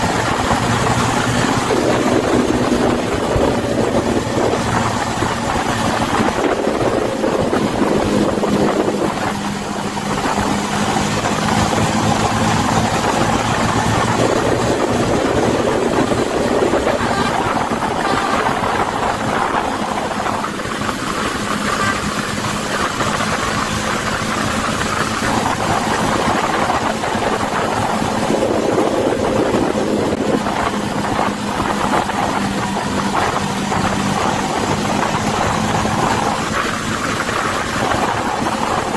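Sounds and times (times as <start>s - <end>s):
road noise: 0.0s - 38.9s
vehicle engine hum: 0.0s - 38.9s.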